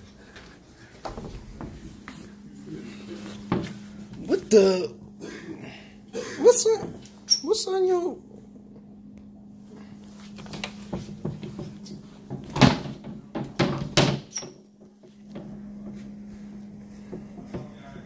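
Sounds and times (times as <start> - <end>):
steady low hum: 0.0 - 18.0
sharp knocks and thumps: 10.8 - 16.0.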